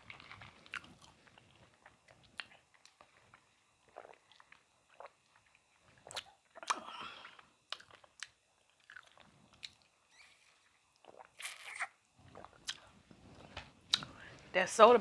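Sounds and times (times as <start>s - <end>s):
slurping: 8.9s - 14.1s
sipping through a straw: 11.1s - 13.4s.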